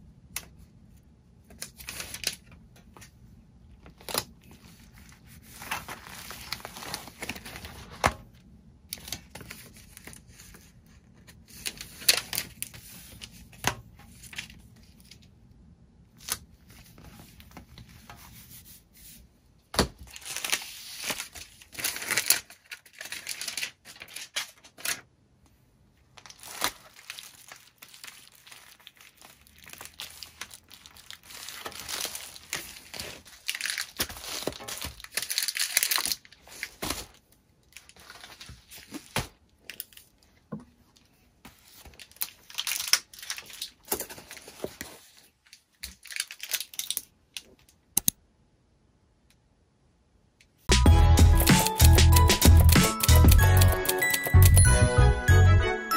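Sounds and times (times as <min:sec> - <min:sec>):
packaging crinkling and tearing: 0:01.5 - 0:02.6, 0:03.9 - 0:08.0, 0:20.0 - 0:25.1, 0:26.2 - 0:40.3, 0:41.6 - 0:47.8.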